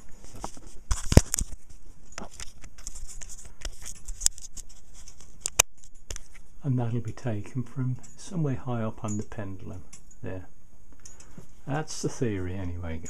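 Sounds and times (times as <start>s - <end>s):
camera handling clicks and rustles: 0.2s - 6.5s.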